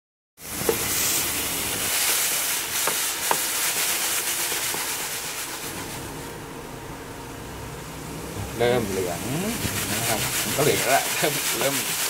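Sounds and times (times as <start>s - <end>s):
pupae sizzling in a pan: 0.4s - 6.4s, 8.6s - 12.0s.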